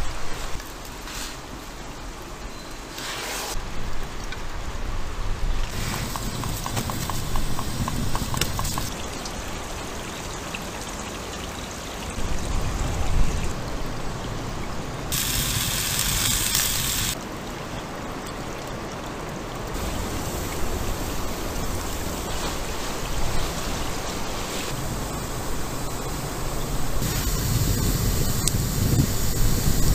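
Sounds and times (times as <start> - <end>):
campfire crackling and hissing: 3.0 - 12.2, 15.0 - 17.4, 19.5 - 29.9.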